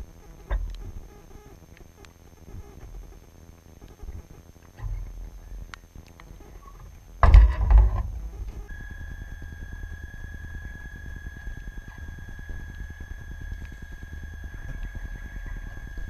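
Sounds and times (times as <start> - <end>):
boat low rumble with ticks: 0.0 - 16.0
high motor whine: 0.0 - 16.0
loud thump and rattle: 7.2 - 8.7.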